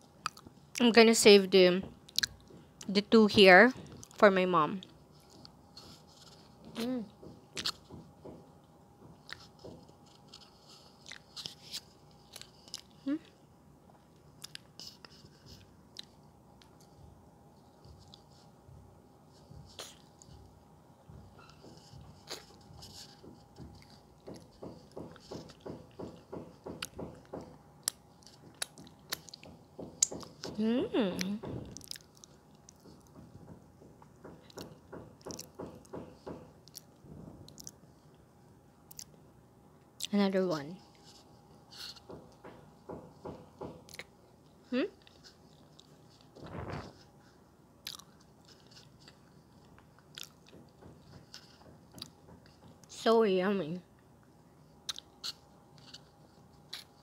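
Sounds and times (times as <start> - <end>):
wet chewing: 0.2 - 0.9, 10.3 - 13.0, 14.4 - 15.1, 27.8 - 30.4, 31.2 - 33.1, 34.4 - 35.9, 36.6 - 37.8, 38.9 - 39.2, 47.8 - 50.6, 51.3 - 52.2, 54.8 - 56.0.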